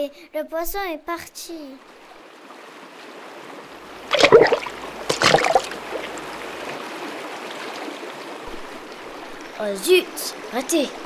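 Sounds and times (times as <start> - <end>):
stream water rushing: 1.8 - 11.0.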